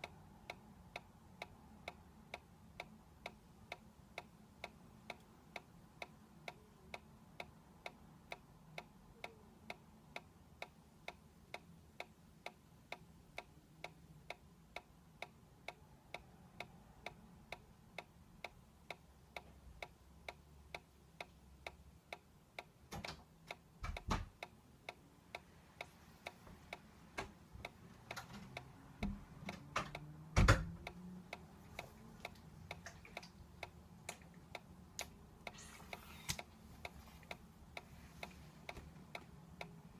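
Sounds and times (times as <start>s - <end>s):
toy ticking: 0.0s - 26.9s, 27.6s - 39.9s.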